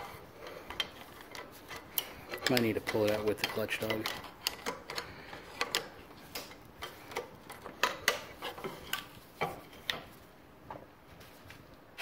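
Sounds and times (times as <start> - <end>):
screwdriver clicking on metal parts: 0.4 - 9.2.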